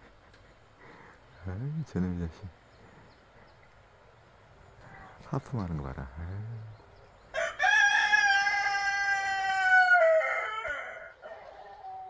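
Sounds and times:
rooster crowing: 0:07.3 - 0:12.0.

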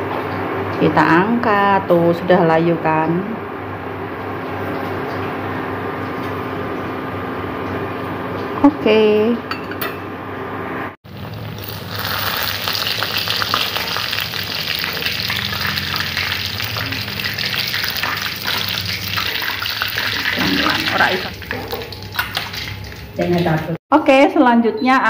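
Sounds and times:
fritters sizzling in hot oil: 0:11.1 - 0:23.7.

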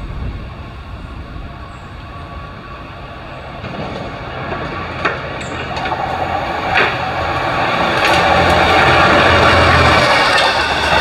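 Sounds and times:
locomotive engine and wheel rumble: 0:00.0 - 0:11.0.

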